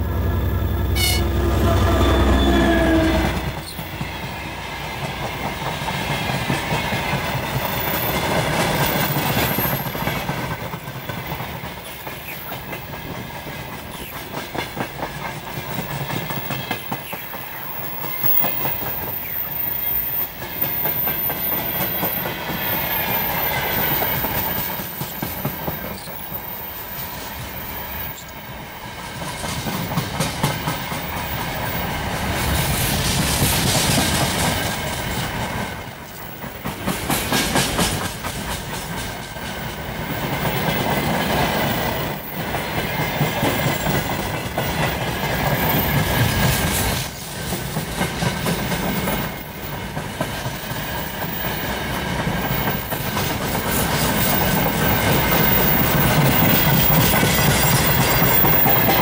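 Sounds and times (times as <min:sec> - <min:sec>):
train rumble: 0:00.0 - 0:59.0
train wheels clattering over rail joints: 0:03.4 - 0:19.6, 0:29.1 - 0:59.0.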